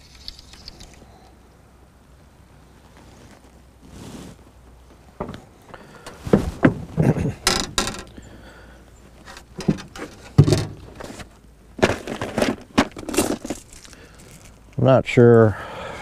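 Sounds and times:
scraping rustles: 2.8s - 8.4s, 9.0s - 14.7s
fishing tackle knocks and clicks: 7.4s - 8.2s.

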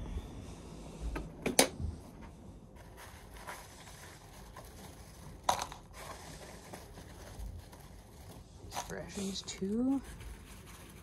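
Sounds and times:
paper towel rustling: 2.7s - 11.0s.

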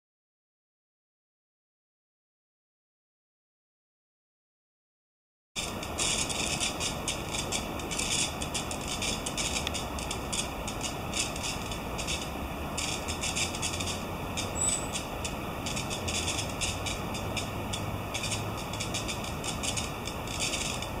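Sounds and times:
low steady hum: 5.6s - 21.0s
rapid high-pitched ticking: 5.6s - 21.0s
river water flowing: 5.6s - 21.0s.

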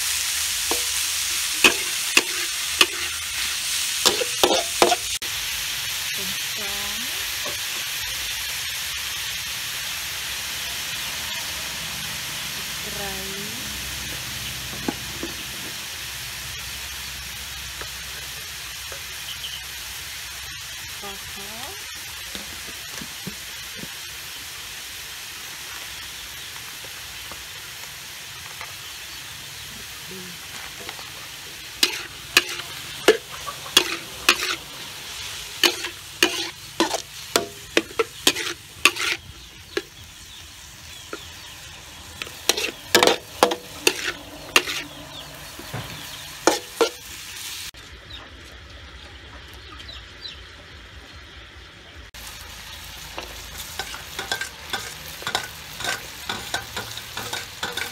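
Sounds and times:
meat sizzling in a wok: 0.0s - 57.9s
metal spatula scraping a pan: 0.7s - 5.2s, 31.7s - 40.0s, 42.2s - 47.1s, 53.6s - 57.9s.

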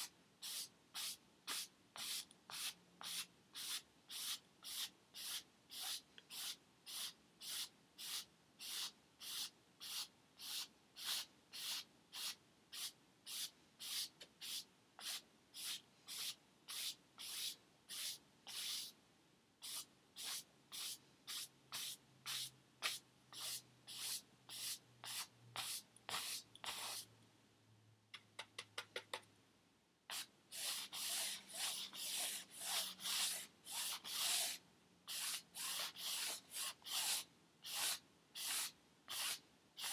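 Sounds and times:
paintbrush scrubbing on canvas: 30.1s - 39.9s.

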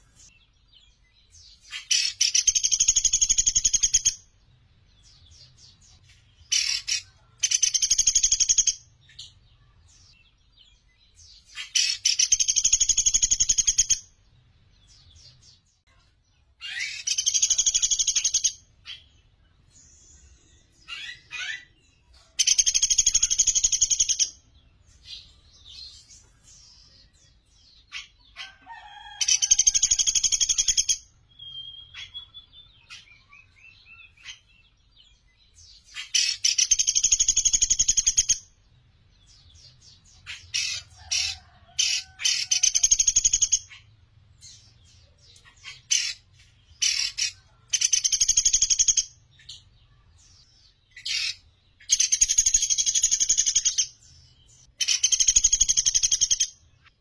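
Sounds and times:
woodpecker high-pitched trills: 11.5s - 14.1s, 16.6s - 19.1s, 22.4s - 24.4s, 29.2s - 34.4s, 35.9s - 38.5s, 40.3s - 43.9s, 46.8s - 49.2s, 54.8s - 56.6s.

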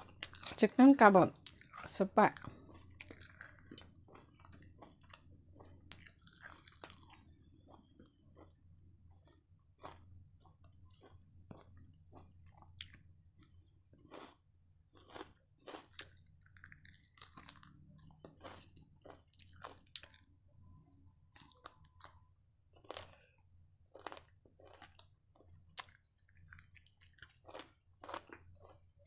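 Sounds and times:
person chewing crunchy food: 0.0s - 0.6s, 1.4s - 20.3s, 20.9s - 22.2s, 22.8s - 29.0s.

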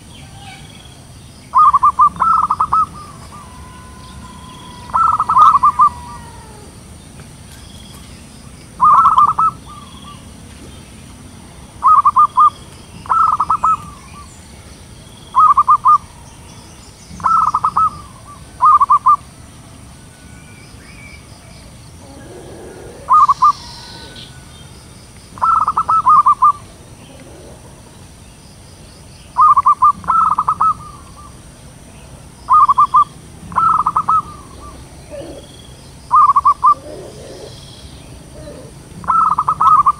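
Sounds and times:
small birds chirping: 0.0s - 39.9s
dove cooing: 1.5s - 7.0s, 8.8s - 10.3s, 11.8s - 14.3s, 15.4s - 16.3s, 17.2s - 19.2s, 21.9s - 24.7s, 25.4s - 28.0s, 29.4s - 31.3s, 32.5s - 39.9s.

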